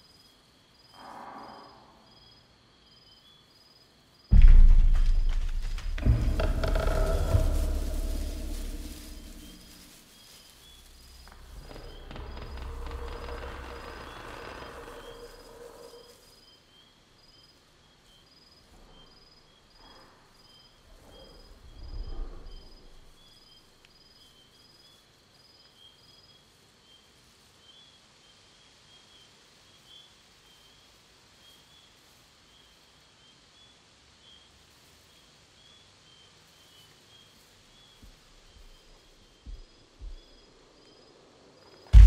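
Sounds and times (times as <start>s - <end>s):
insects chirping: 0.0s - 42.0s
deep heavy footstep thud: 4.3s - 10.0s, 39.5s - 40.4s
wood creaking: 4.3s - 10.1s, 10.8s - 16.0s.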